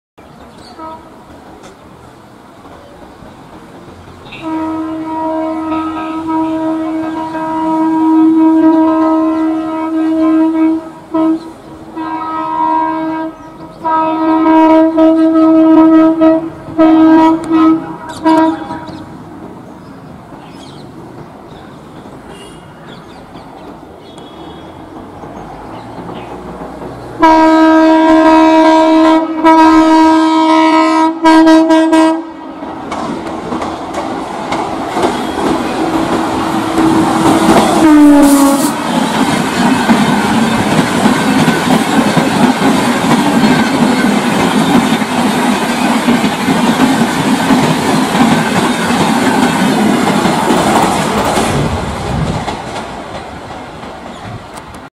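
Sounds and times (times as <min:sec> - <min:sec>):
train rushing and clattering past: 0:00.2 - 0:54.9
locomotive horn blasts: 0:00.7 - 0:01.2, 0:04.3 - 0:19.0, 0:22.3 - 0:22.8, 0:27.2 - 0:32.5, 0:36.5 - 0:38.9.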